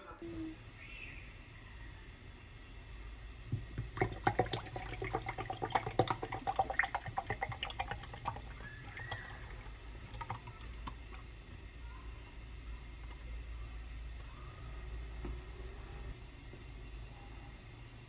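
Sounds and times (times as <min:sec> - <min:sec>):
milk dripping in plastic tumbler: 0:03.5 - 0:14.4.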